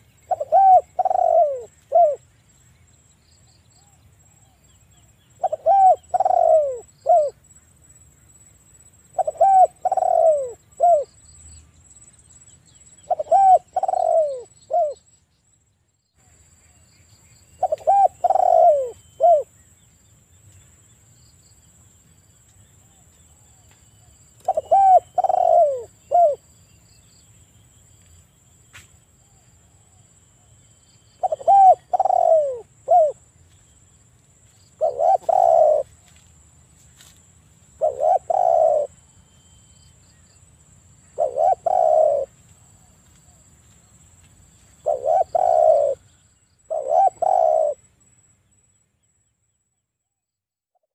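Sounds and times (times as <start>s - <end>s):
dove cooing: 0.3s - 2.2s, 5.4s - 7.4s, 9.1s - 11.1s, 13.0s - 15.0s, 17.6s - 19.5s, 24.4s - 26.4s, 31.2s - 33.2s, 34.7s - 36.0s, 37.8s - 39.0s, 41.2s - 42.4s, 44.8s - 46.0s, 46.7s - 47.8s.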